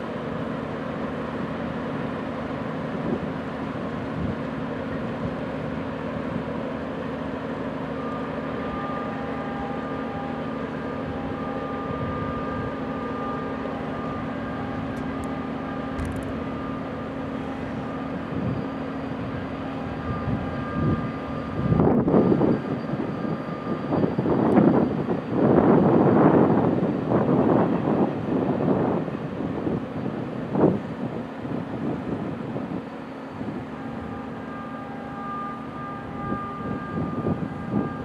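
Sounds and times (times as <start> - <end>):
faint high whine: 0.0 - 38.0
freight train rumbling past: 0.0 - 38.0
wind buffeting microphone: 14.2 - 34.4, 36.0 - 38.0.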